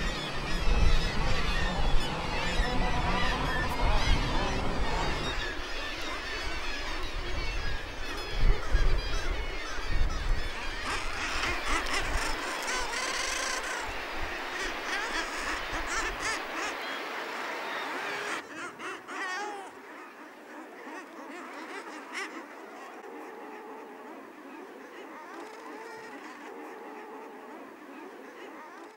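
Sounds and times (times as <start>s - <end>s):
wind rumbling on microphone: 0.0s - 17.1s
seabirds calling: 0.0s - 28.9s.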